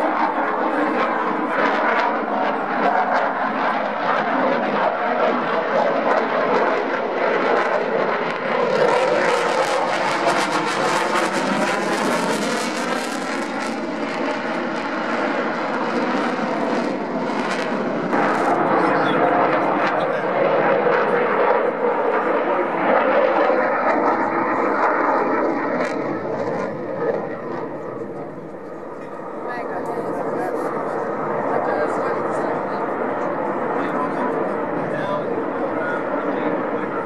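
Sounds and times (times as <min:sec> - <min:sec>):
jet engine roar: 0:00.0 - 0:37.0
jet engine crackle: 0:06.1 - 0:31.3.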